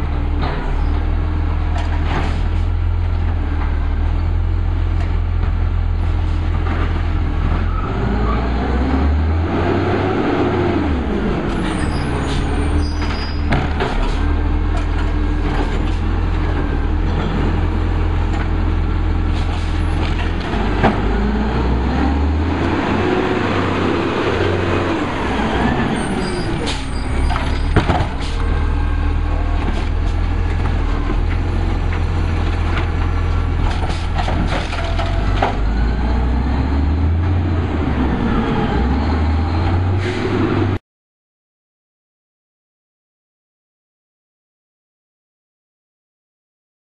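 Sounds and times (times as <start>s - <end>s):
garbage truck engine revving: 0.0s - 40.8s
air brakes hissing: 40.0s - 40.4s.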